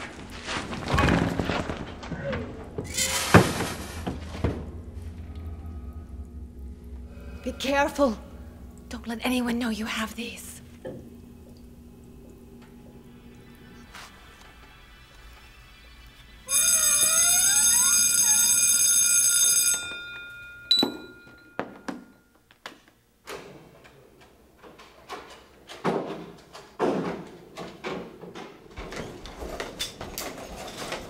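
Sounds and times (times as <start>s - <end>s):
busy hallway bustle: 16.5s - 20.6s
electronic school bell tone: 16.5s - 22.2s.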